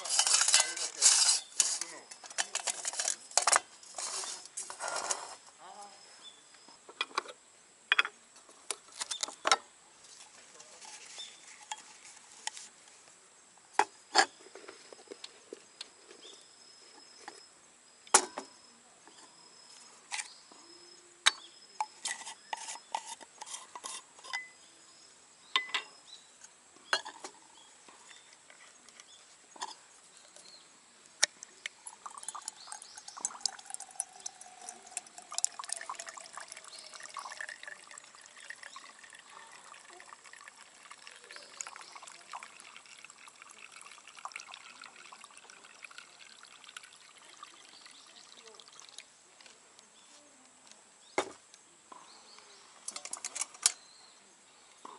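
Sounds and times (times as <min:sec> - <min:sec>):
metal clinks and clatter: 0:00.0 - 0:04.4
fuel trickling into burner: 0:00.0 - 0:05.4, 0:31.3 - 0:49.1.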